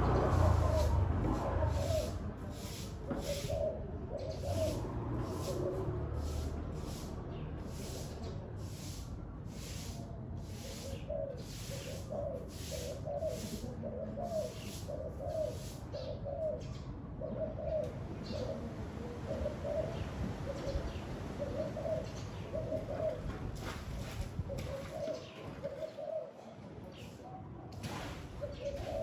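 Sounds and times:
dove cooing: 0.0s - 7.1s, 10.4s - 23.7s, 24.4s - 27.1s, 28.4s - 29.0s
wind rumble on microphone: 18.0s - 25.5s.

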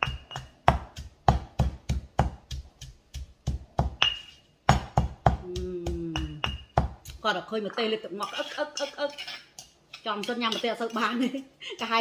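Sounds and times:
stone pestle pounding in mortar: 0.0s - 7.4s.

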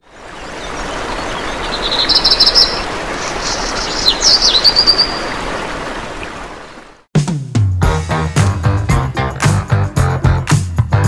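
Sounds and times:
small birds singing: 0.0s - 5.5s.

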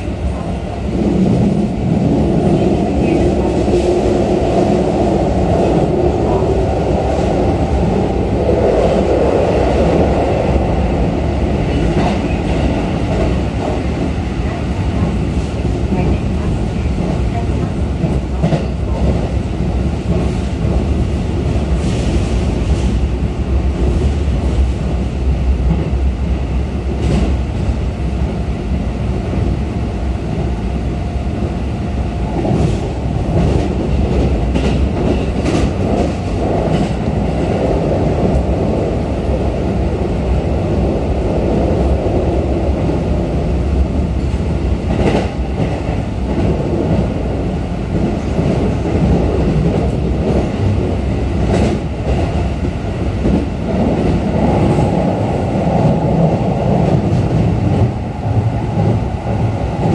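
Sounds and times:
train wheels rumbling on rails: 0.0s - 59.9s
track clicks and clacks: 11.4s - 23.0s, 32.3s - 40.4s, 43.9s - 59.9s.

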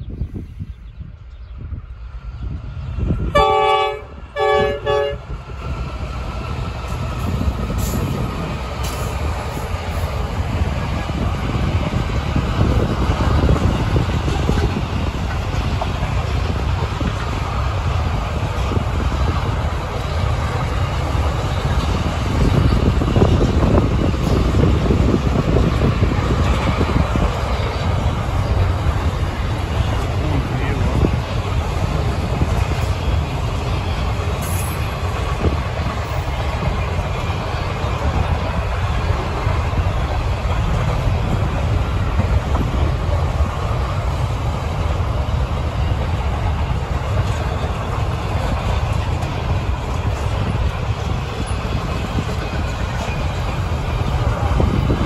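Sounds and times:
train rumbling past: 0.0s - 55.0s
locomotive air horn blasts: 3.3s - 5.2s.

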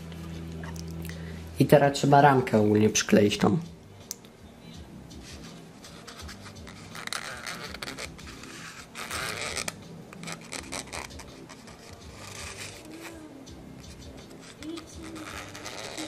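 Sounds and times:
plastic parts scratching and rubbing: 5.2s - 13.2s, 13.8s - 16.0s.

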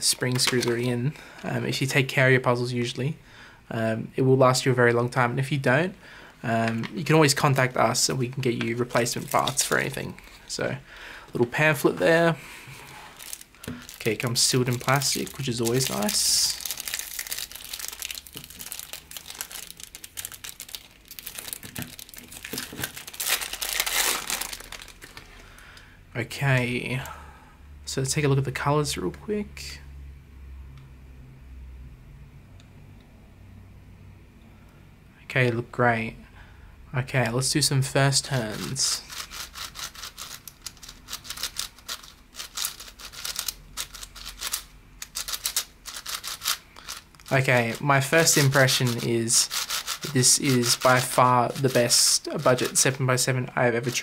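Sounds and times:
plastic wrapping crinkling: 7.2s - 10.4s, 12.6s - 25.4s, 38.4s - 53.2s, 53.8s - 54.0s.

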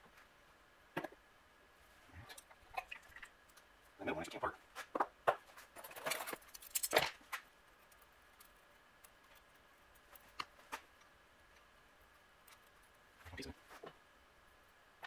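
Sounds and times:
small metal parts clinking: 5.8s - 7.1s.

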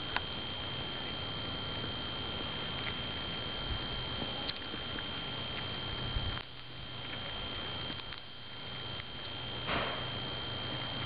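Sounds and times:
seed husks cracking: 4.4s - 8.4s.

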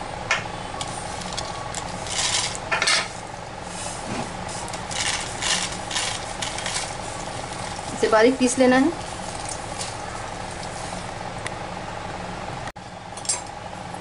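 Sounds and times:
spices rattling into grinder jar: 1.2s - 2.7s, 4.8s - 7.8s.

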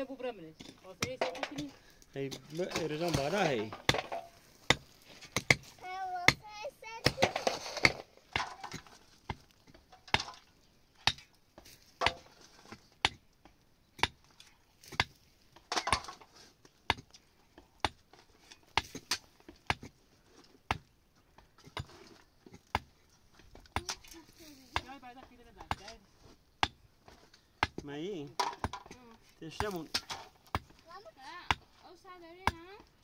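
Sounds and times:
pickaxe striking stony earth: 2.7s - 5.7s, 7.0s - 10.4s, 16.9s - 17.2s, 17.8s - 20.0s, 26.6s - 30.8s.

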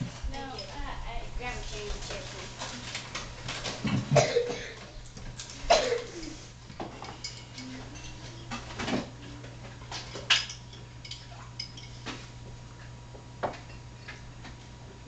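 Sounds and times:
steady low hum: 0.0s - 15.0s
dishes and cutlery clinking: 3.5s - 12.3s.

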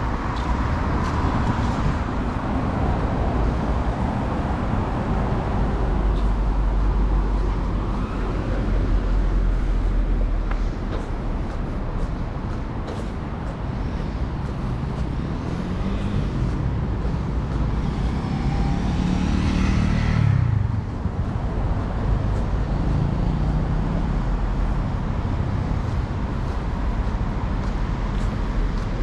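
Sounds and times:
traffic engines rumbling: 0.0s - 29.0s
vehicle passing close by: 15.1s - 25.8s.

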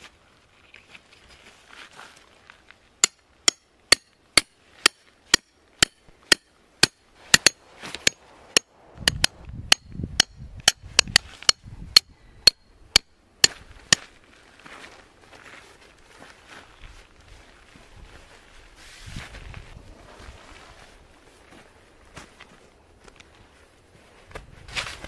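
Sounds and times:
hammer striking tent stake: 3.0s - 14.1s.

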